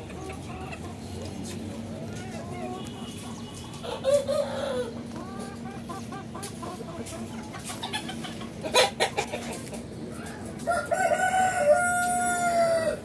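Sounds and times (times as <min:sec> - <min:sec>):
chickens clucking: 0:00.0 - 0:13.0
rooster crowing: 0:03.8 - 0:04.9, 0:10.6 - 0:13.0.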